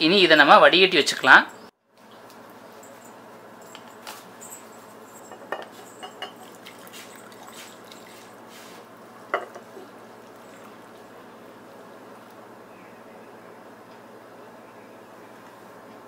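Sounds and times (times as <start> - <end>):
pot and strainer clinking on cup: 5.2 - 8.2, 9.3 - 9.7
liquid pouring: 6.1 - 8.7, 9.4 - 11.0.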